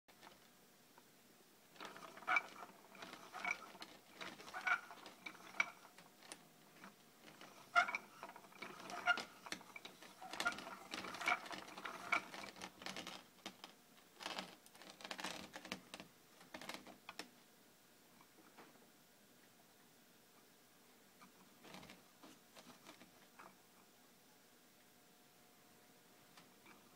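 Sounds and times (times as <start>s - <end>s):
wooden mechanism clicking and squeaking: 1.8s - 17.3s, 21.3s - 23.6s.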